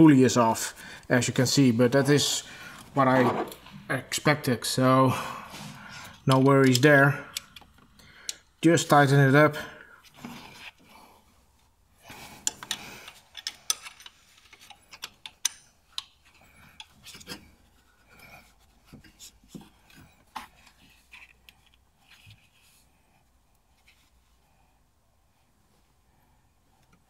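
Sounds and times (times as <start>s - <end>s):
metallic clicks of hand tools: 12.4s - 16.2s.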